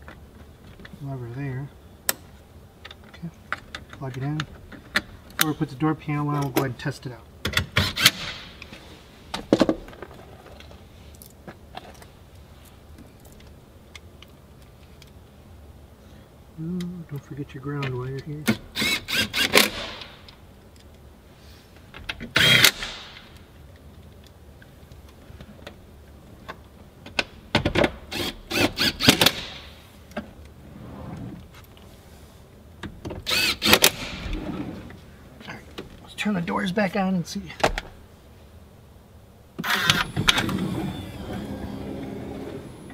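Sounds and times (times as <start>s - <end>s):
cordless drill driving screws: 18.7s - 20.1s, 22.4s - 23.0s, 28.1s - 29.5s, 33.2s - 34.2s, 39.6s - 42.9s.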